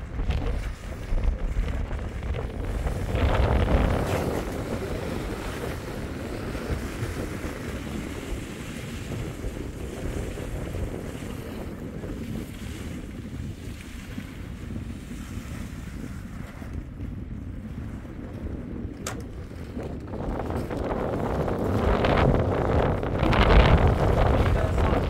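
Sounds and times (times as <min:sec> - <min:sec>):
strong wind buffeting microphone: 0:00.0 - 0:25.0.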